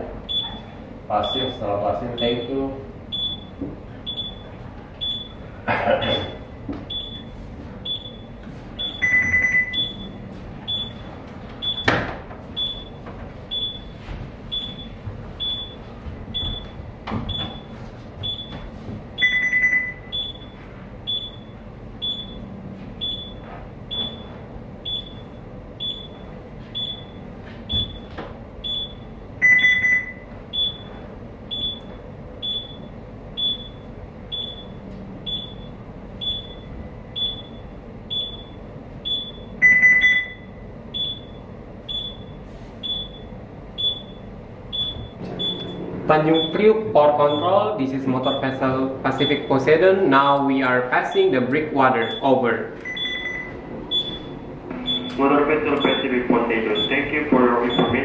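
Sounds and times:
longer lower electronic beep: 0:02.2 - 0:05.4, 0:06.2 - 0:11.0, 0:12.6 - 0:13.9, 0:19.2 - 0:26.2, 0:28.6 - 0:30.9, 0:31.5 - 0:48.6, 0:49.2 - 0:49.7, 0:52.0 - 0:58.0.

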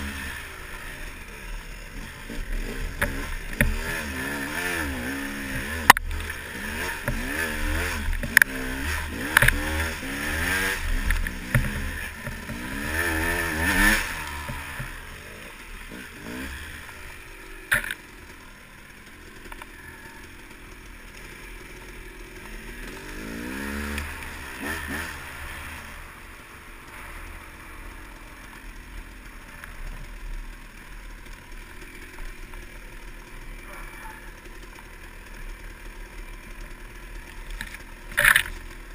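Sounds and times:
dirt bike engine revving: 0:00.0 - 0:38.9
bike knocking and clattering: 0:11.0 - 0:13.1, 0:37.4 - 0:38.9.

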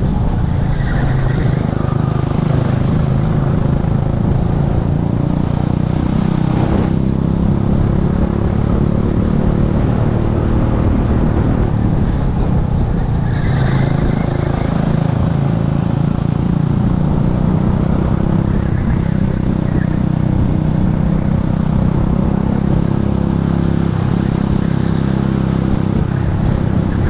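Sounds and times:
kart engine running hard: 0:00.0 - 0:27.0
wind rush: 0:00.0 - 0:27.0.

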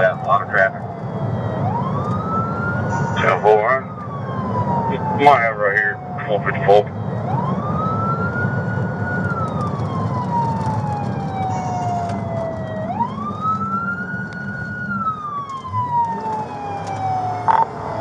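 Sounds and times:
car engine and road noise: 0:00.0 - 0:18.0
police siren wailing: 0:00.0 - 0:18.0.

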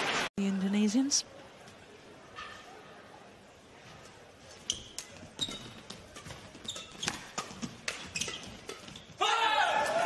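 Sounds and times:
badminton rackets hitting shuttlecock: 0:04.7 - 0:10.0.

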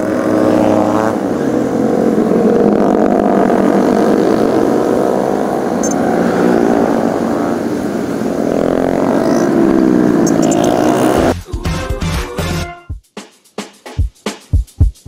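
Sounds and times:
motorcycles riding past: 0:00.0 - 0:11.4.

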